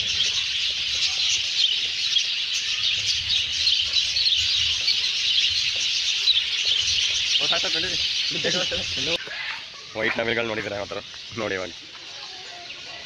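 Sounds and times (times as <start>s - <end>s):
flock of birds chirping: 0.0s - 13.0s.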